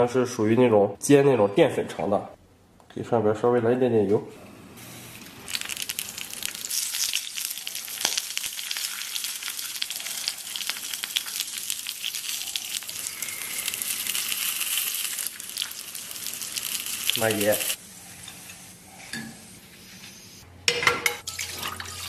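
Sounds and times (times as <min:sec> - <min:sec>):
sausages sizzling in oil: 0:04.8 - 0:20.3.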